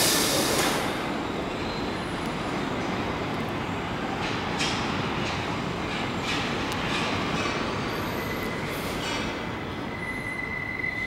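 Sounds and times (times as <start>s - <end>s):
brief hiss: 0.0s - 1.0s
train wheels rumbling on rail: 0.0s - 11.0s.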